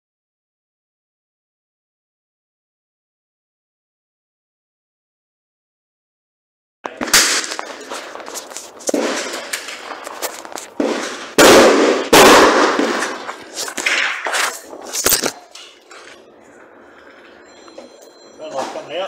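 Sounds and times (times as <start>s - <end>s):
gunshots: 6.9s - 14.5s.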